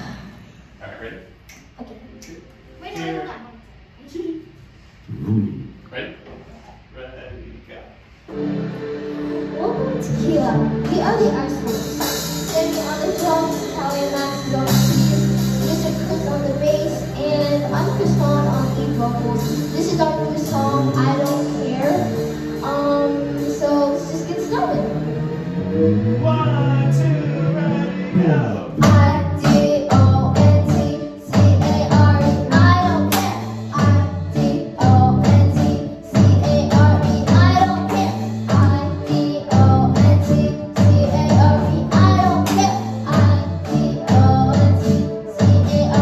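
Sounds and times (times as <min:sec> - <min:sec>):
live band keyboards and guitar: 0:08.2 - 0:46.0
electronic drum kit: 0:08.3 - 0:46.0
child singing into a microphone: 0:12.4 - 0:22.0, 0:22.6 - 0:24.8, 0:28.8 - 0:46.0.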